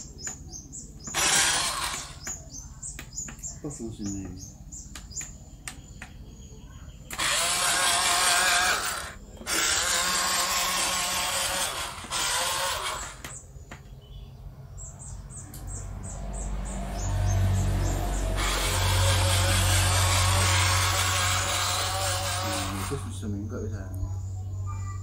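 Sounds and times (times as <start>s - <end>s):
small electric motor whining: 1.0s - 2.4s, 7.1s - 13.4s, 17.7s - 23.4s.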